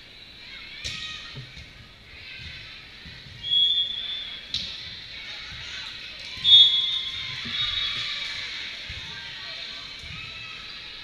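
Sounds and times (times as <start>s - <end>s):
sports whistle blasts: 3.4s - 4.4s, 6.4s - 7.0s.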